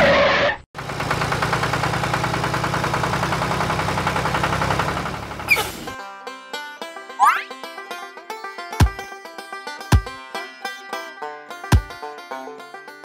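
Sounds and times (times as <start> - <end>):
tractor engine chugging: 0.8 - 6.0, 11.7 - 12.0
plucked-string music: 5.9 - 13.0.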